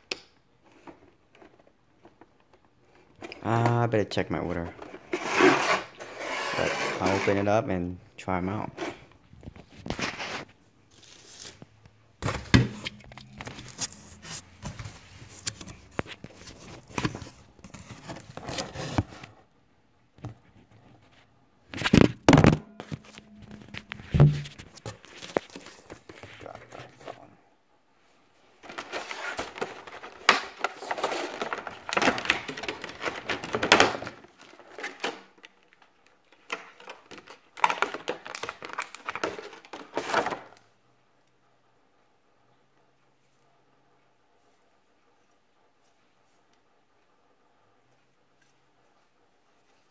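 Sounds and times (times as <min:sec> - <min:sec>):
plastic packaging crinkling: 0:21.8 - 0:27.1, 0:28.6 - 0:40.5.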